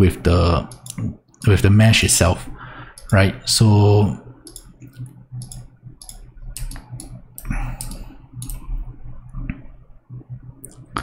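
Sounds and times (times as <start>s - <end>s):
low steady hum: 0.0s - 11.0s
mouse and keyboard clicks: 4.5s - 8.7s.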